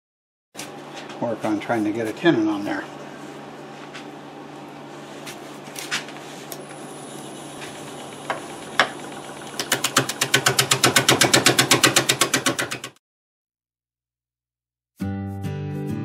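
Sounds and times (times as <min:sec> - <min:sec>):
wood lathe humming: 0:06.4 - 0:12.6
gouge tapping on spinning wood: 0:07.5 - 0:13.0.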